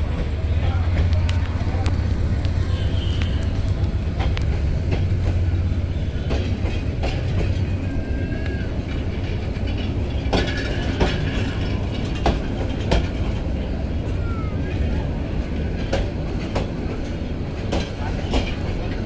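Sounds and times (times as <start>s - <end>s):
train rumbling: 0.0s - 19.0s
sharp clicks and knocks: 0.9s - 5.5s, 9.6s - 13.4s.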